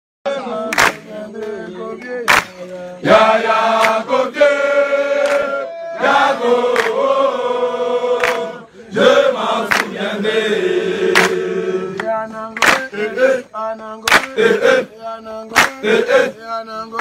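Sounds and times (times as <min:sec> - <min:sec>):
group chanting a song: 0:00.3 - 0:17.0.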